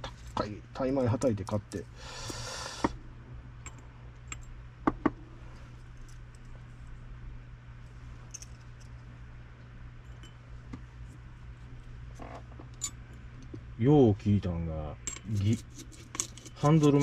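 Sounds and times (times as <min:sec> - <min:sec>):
steady low hum: 0:00.0 - 0:17.0
small metal parts clinking: 0:15.0 - 0:17.0.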